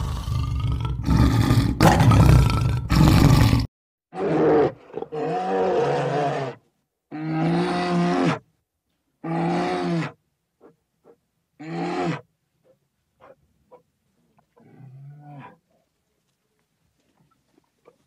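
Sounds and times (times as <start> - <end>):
bear roaring: 0.0 - 8.4.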